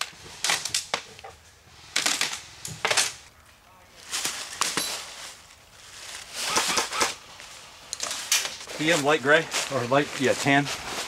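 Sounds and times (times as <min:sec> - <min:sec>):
airsoft guns firing bursts: 0:06.4 - 0:07.2.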